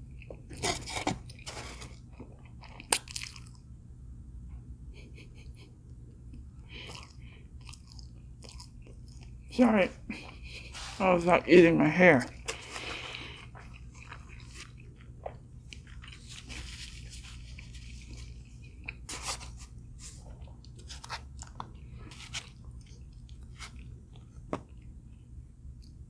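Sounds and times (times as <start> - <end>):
crunching of crisp food: 0.0 - 3.7, 6.7 - 9.5, 12.3 - 26.0.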